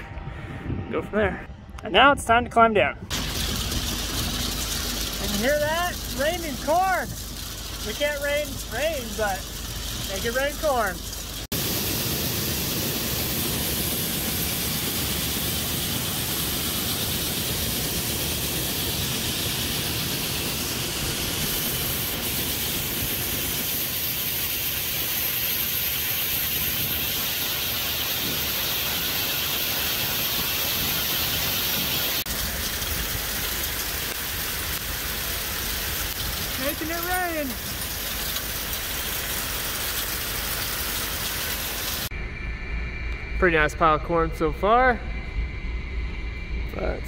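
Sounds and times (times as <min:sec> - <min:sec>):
low rumble: 0:00.0 - 0:23.8, 0:42.0 - 0:47.0
corn kernels pouring into bin: 0:03.1 - 0:11.4.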